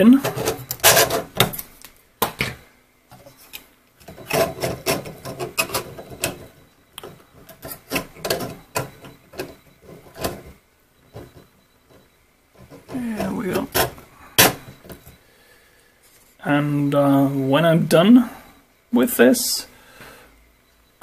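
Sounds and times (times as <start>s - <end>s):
plastic clicks knocks and rubbing: 0.3s - 10.5s.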